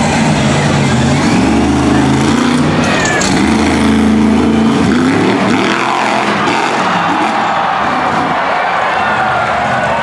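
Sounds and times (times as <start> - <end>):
monster truck engine revving: 0.0 - 10.0.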